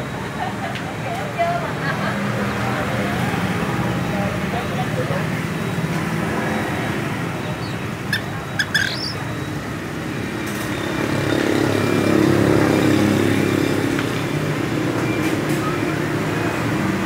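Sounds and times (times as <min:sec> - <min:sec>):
road traffic noise: 0:00.0 - 0:17.0
high bird chirps: 0:07.4 - 0:09.5.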